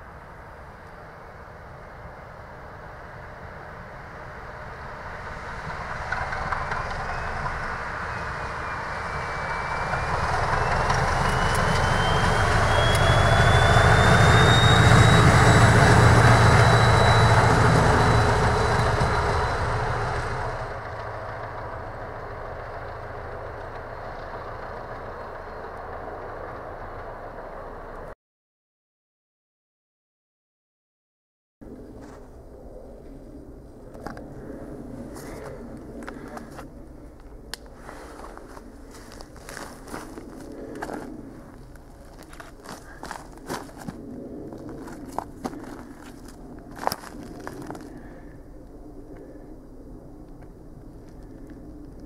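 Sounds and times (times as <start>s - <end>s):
diesel locomotive passing: 0.0s - 28.2s, 31.7s - 52.0s
high whine rising in pitch: 4.2s - 28.1s.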